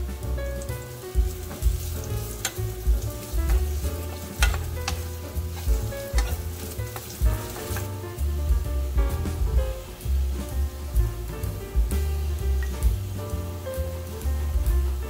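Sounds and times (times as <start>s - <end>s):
background music with low beat: 0.0s - 15.0s
food sizzling in hot oil: 0.0s - 15.0s
spatula knocking on pan: 0.6s - 9.6s.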